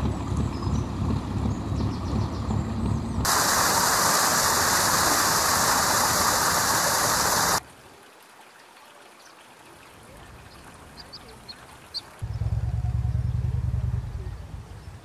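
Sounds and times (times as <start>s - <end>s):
water rushing at canal lock: 3.2s - 12.2s.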